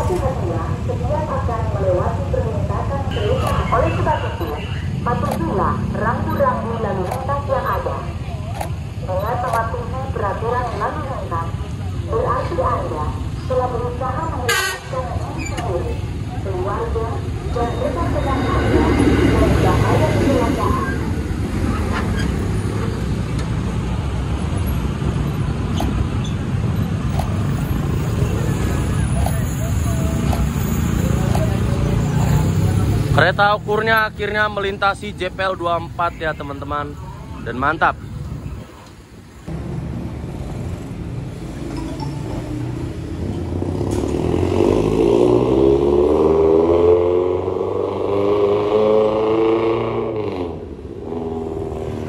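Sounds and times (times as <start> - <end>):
train rumbling: 0.0 - 33.2, 38.1 - 45.4
vehicle engine accelerating: 39.5 - 52.0.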